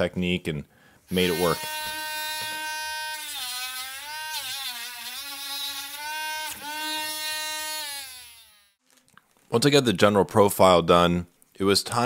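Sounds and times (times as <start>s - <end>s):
rotary tool sanding plastic: 1.1s - 8.8s.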